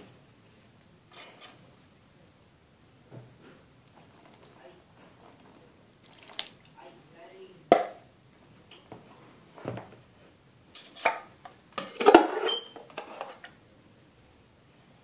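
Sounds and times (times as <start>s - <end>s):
water being scooped: 5.2s - 6.6s.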